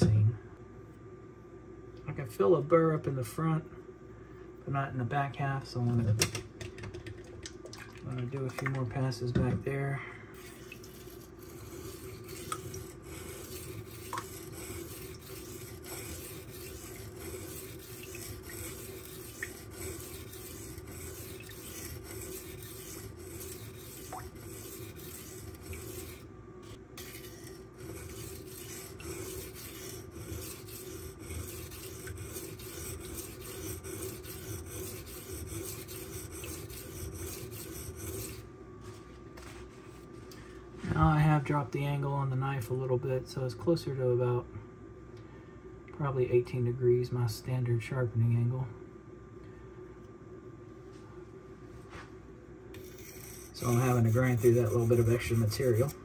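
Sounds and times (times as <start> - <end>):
knife scraping on sharpening stone: 10.4 - 26.2, 27.0 - 38.4, 52.8 - 56.0.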